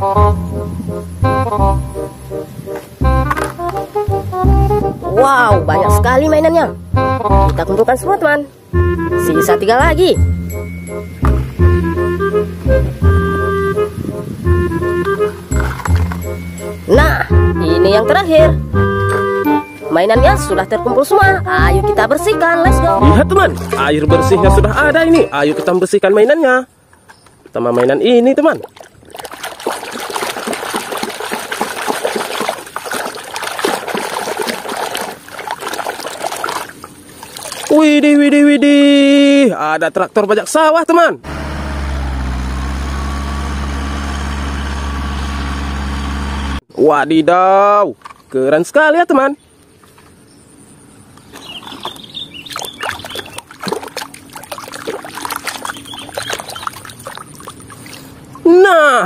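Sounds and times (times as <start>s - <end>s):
water sloshing in a plastic tub: 22.5s - 24.2s, 25.4s - 38.0s, 51.1s - 58.8s.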